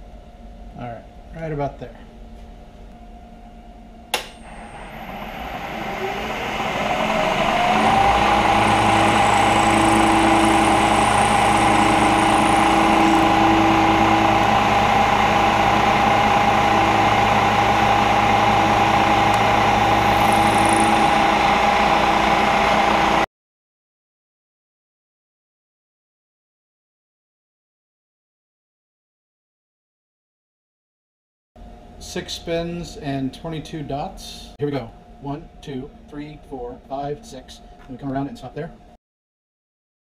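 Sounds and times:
milling machine switch click: 0:04.1 - 0:04.4
end mill cutting metal: 0:04.4 - 0:23.2
milling machine motor running: 0:04.4 - 0:23.3.

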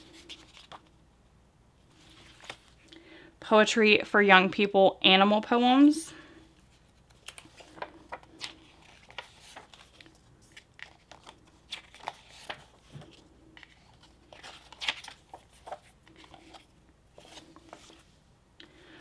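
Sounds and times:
book pages turning: 0:00.0 - 0:01.0, 0:01.9 - 0:02.9, 0:06.6 - 0:18.2.

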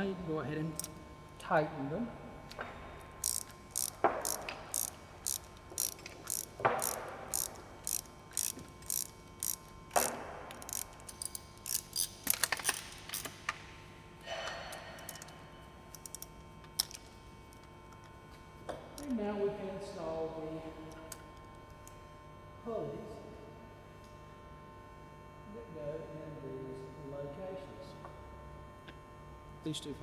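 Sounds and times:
ratchet wrench clicking: 0:03.2 - 0:13.4, 0:15.0 - 0:15.3, 0:15.9 - 0:17.0.

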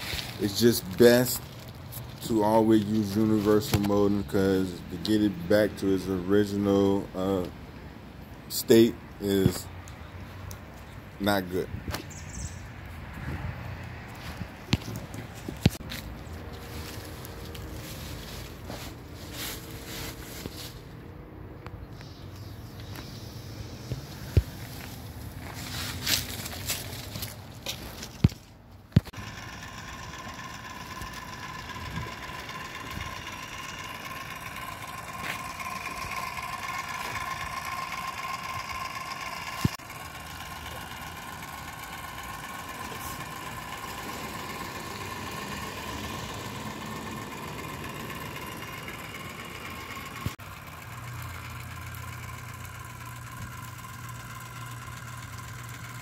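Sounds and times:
caulking gun motor whining: 0:00.0 - 0:11.6, 0:22.3 - 0:56.0
low hum: 0:29.1 - 0:56.0.

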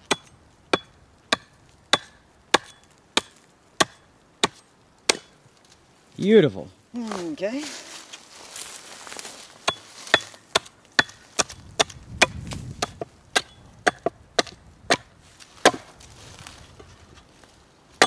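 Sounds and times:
axe chopping log: 0:00.0 - 0:05.3, 0:09.6 - 0:16.0.

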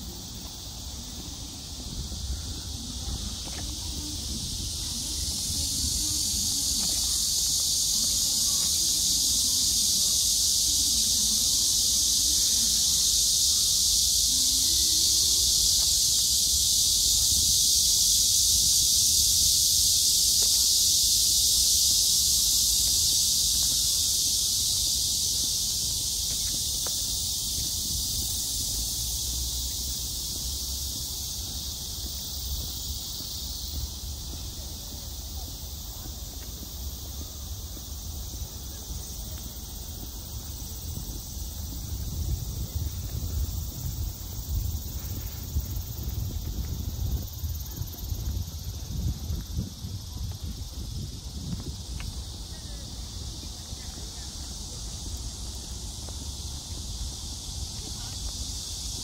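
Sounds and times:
insect chorus buzzing: 0:00.0 - 0:59.0.

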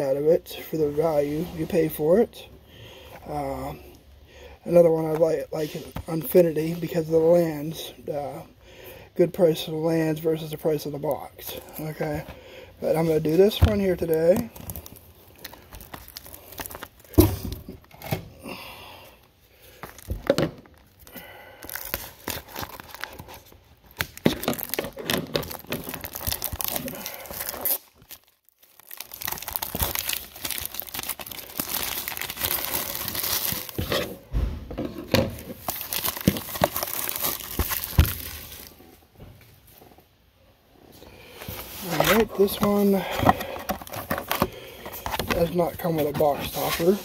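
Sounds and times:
plastic shrink wrap crinkling: 0:10.4 - 0:17.9, 0:19.7 - 0:34.2, 0:35.1 - 0:39.0, 0:41.4 - 0:47.0.

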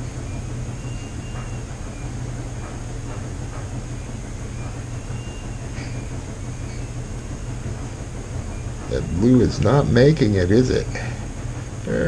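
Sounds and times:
household machines humming: 0:00.0 - 0:12.0
faint high whines: 0:03.9 - 0:12.0.

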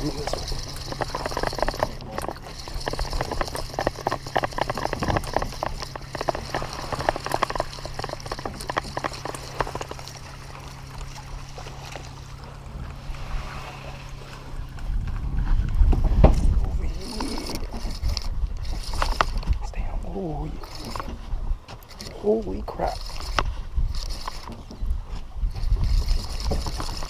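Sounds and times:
water splashing against boat hull: 0:00.0 - 0:14.9
low boat hum: 0:00.0 - 0:27.0.

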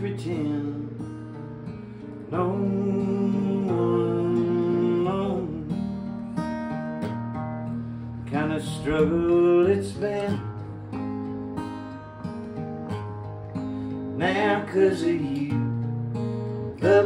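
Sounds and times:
acoustic guitar: 0:00.0 - 0:17.0
person singing: 0:02.3 - 0:05.8, 0:16.8 - 0:17.0.

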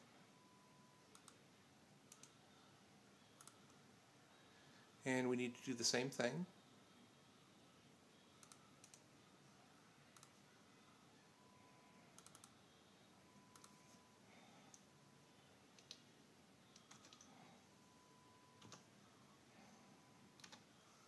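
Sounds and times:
computer keyboard and mouse clicks: 0:01.1 - 0:01.4, 0:02.1 - 0:02.4, 0:03.4 - 0:03.8, 0:08.4 - 0:09.0, 0:12.2 - 0:12.6, 0:13.5 - 0:13.8, 0:15.8 - 0:16.0, 0:16.7 - 0:17.3, 0:18.6 - 0:18.8, 0:20.4 - 0:20.6.

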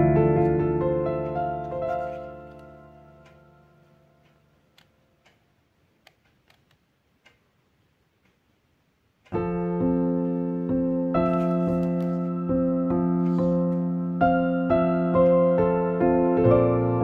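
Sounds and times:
piano chords: 0:00.0 - 0:04.7, 0:09.3 - 0:17.0.

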